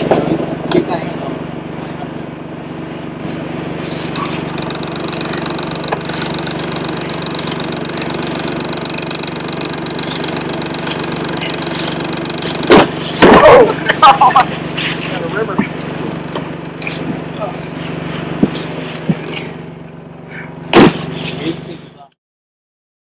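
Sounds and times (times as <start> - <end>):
engine running steadily: 0.0 - 22.2
loud bumps: 4.3 - 13.7.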